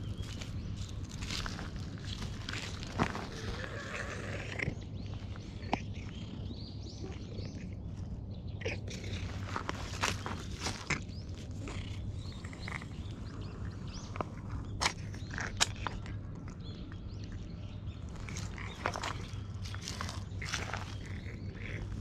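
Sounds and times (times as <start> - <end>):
dry leaves rustling and crackling: 0.0 - 4.4, 9.1 - 11.6, 18.2 - 21.8
birds chirping faintly: 0.0 - 22.0
steady low rumble: 0.0 - 22.0.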